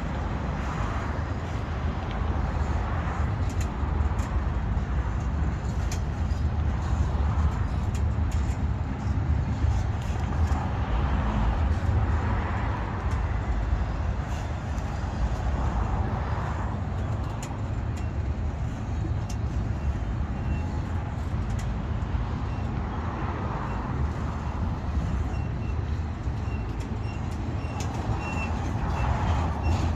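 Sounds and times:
light clicks and ticks: 0.1s - 10.8s, 11.4s - 22.9s.

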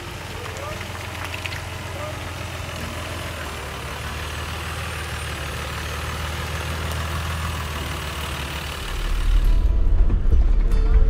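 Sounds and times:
car engine at low revs: 0.0s - 9.8s.

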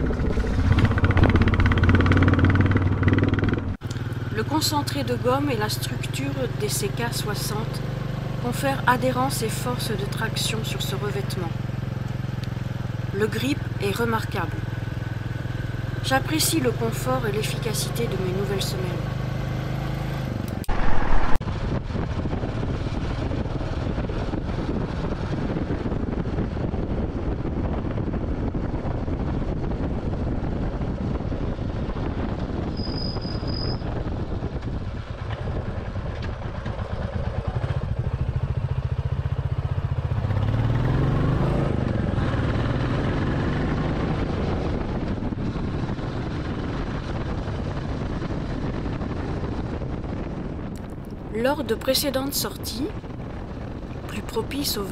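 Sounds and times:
motorcycle engine running: 0.0s - 20.7s, 33.9s - 54.9s
road and wind noise: 0.0s - 54.9s.

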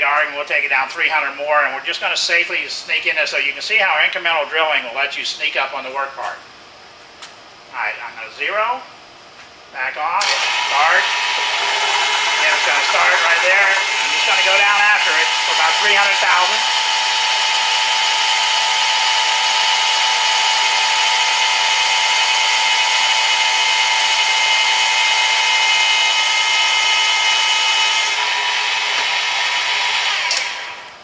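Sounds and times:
drill cutting metal hiss: 10.2s - 30.9s
drill motor whine: 10.2s - 31.0s.

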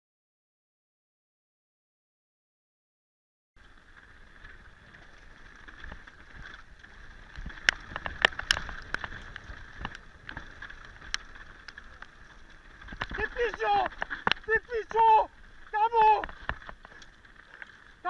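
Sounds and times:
bike knocks and rattles over bumps: 3.6s - 18.0s.

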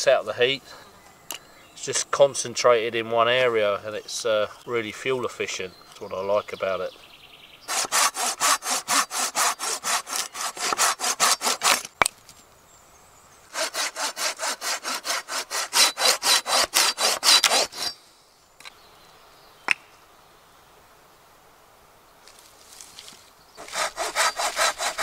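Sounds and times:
hand saw cutting branch: 7.7s - 12.0s, 13.5s - 18.0s, 23.6s - 25.0s.

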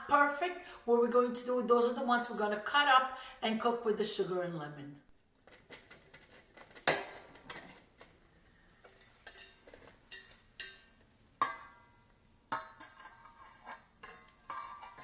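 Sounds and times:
berries clattering onto metal pan: 5.4s - 8.2s, 8.8s - 15.0s.

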